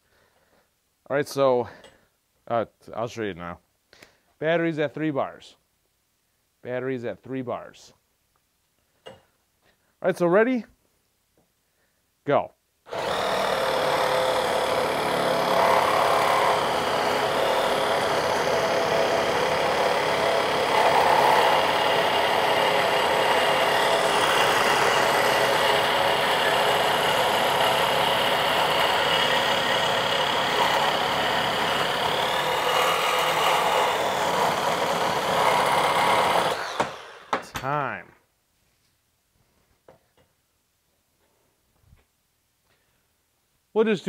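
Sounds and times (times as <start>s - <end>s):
reciprocating saw cutting pipe: 12.9s - 37.4s.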